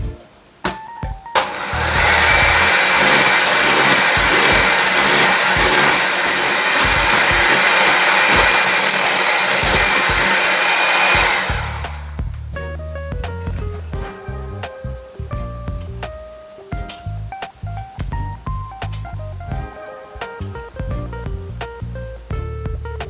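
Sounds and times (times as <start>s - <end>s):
electric hand mixer whining: 1.4s - 12.1s.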